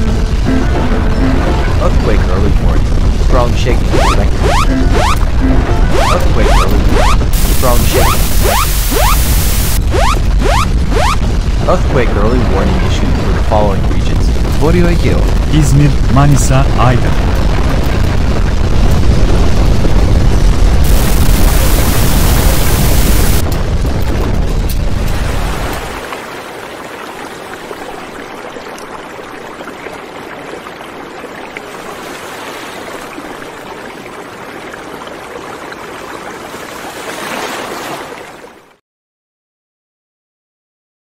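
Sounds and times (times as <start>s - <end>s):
earthquake rumble: 0.0s - 8.5s, 9.7s - 32.0s.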